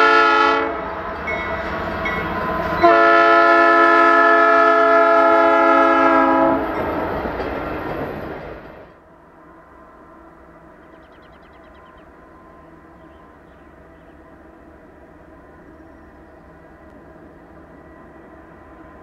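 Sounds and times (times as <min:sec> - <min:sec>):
locomotive air horn: 0:00.0 - 0:00.9, 0:02.8 - 0:06.8
train rumbling by: 0:00.0 - 0:19.0.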